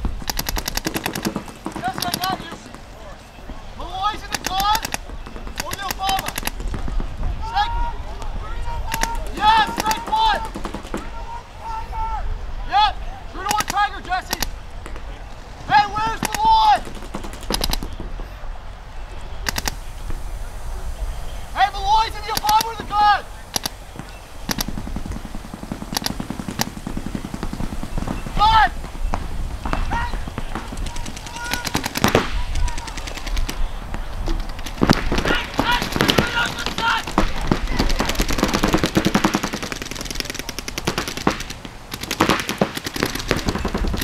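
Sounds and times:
paintball markers firing: 0.0 - 3.0, 4.1 - 7.2, 8.9 - 11.2, 13.4 - 15.2, 15.9 - 18.3, 19.4 - 20.2, 22.0 - 44.0.

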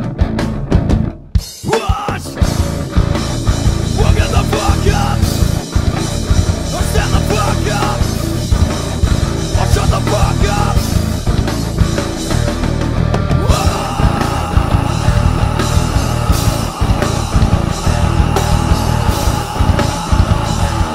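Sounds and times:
rock band playing: 0.0 - 20.9
man singing: 1.6 - 2.7, 3.8 - 6.0, 6.7 - 8.4, 9.5 - 11.1, 13.4 - 20.9.

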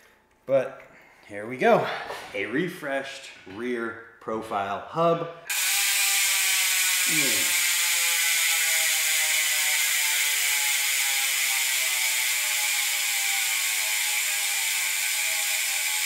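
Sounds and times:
bicycle hub freewheel clicking: 5.5 - 16.0.

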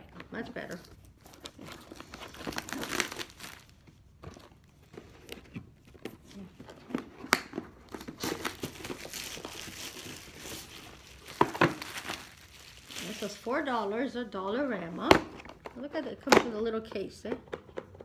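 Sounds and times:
packaging crinkling: 0.7 - 5.4, 6.4 - 13.8.

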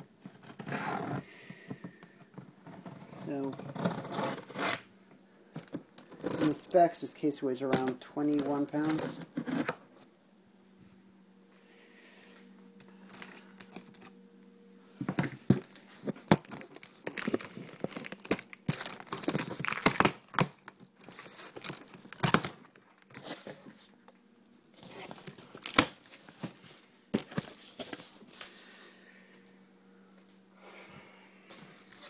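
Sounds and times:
cardboard and plastic crinkling: 5.5 - 7.0, 7.6 - 9.8, 13.0 - 14.2, 15.0 - 24.0, 24.8 - 28.5.

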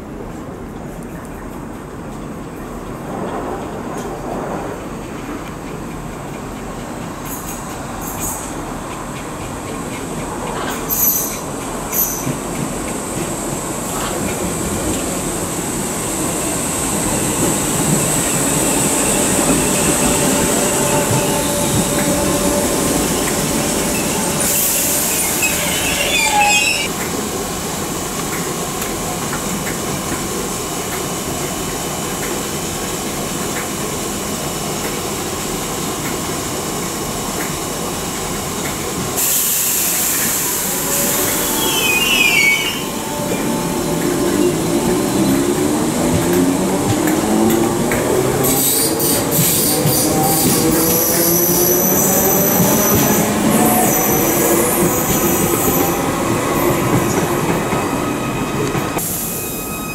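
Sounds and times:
burst of hiss with falling squeal: 23.7 - 26.9, 39.2 - 43.9, 59.0 - 59.9.

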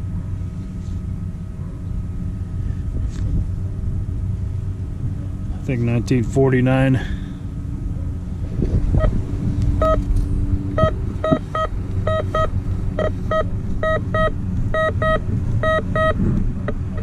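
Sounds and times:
steady low rumble: 0.0 - 17.0
metal detector beeping: 9.8 - 10.1, 10.8 - 16.2.

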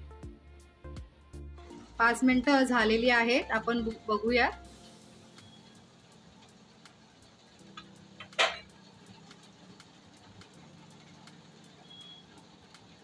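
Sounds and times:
cookware clack: 7.8 - 8.7.

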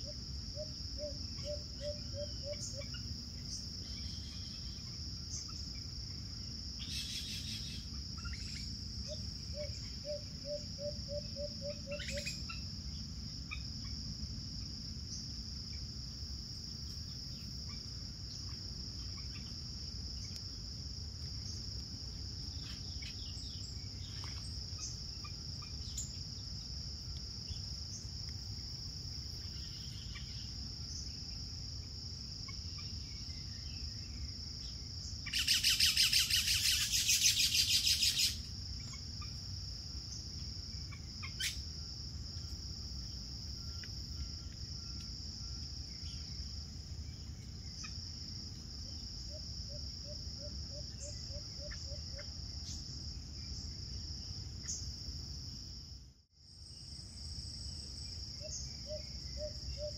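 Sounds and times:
high-pitched insect drone: 34.6 - 39.4
faint bird chirps: 35.3 - 39.0.

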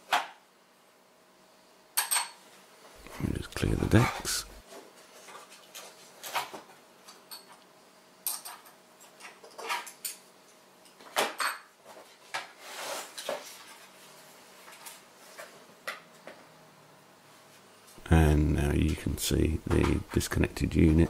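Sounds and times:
scraping rustle: 12.0 - 15.4.

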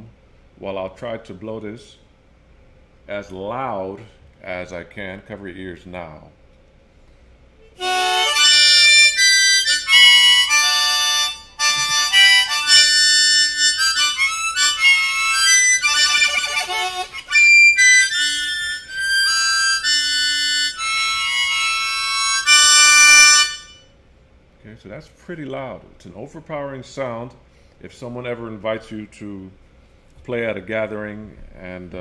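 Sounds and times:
blues harmonica blown hard: 7.6 - 23.9.

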